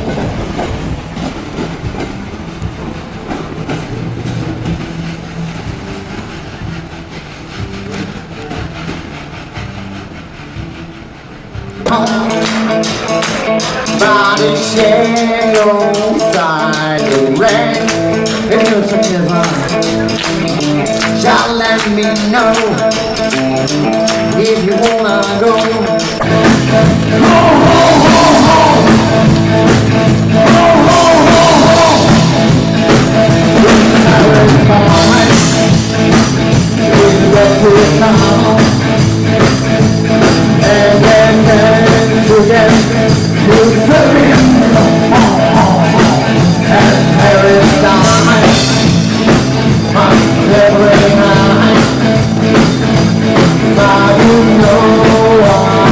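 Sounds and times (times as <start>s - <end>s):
drum kit: 0.0s - 55.9s
electric guitars: 0.0s - 55.9s
blues-rock band playing: 3.9s - 55.9s
man singing: 11.9s - 20.1s, 20.8s - 23.2s, 24.2s - 35.8s, 36.8s - 39.1s, 40.2s - 52.6s, 53.3s - 55.9s.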